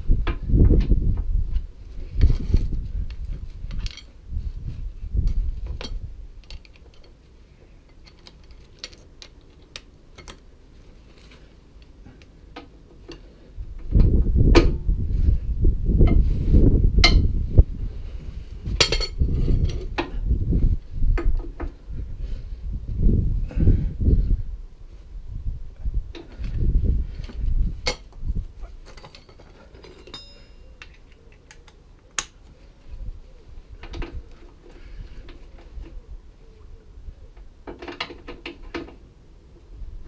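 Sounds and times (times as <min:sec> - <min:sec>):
low rumbling: 0:13.6 - 0:28.8
metal hand tools clinking: 0:28.9 - 0:31.0.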